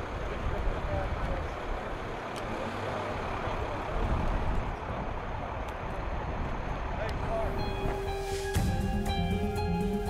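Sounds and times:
airfield rumbling noise: 0:00.0 - 0:10.0.

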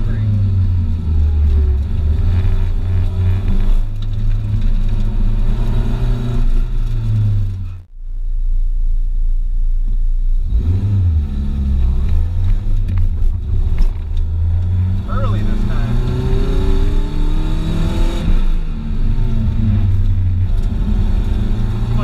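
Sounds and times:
car engine pulling under load: 0:00.0 - 0:07.8
low rumble: 0:00.0 - 0:22.0.

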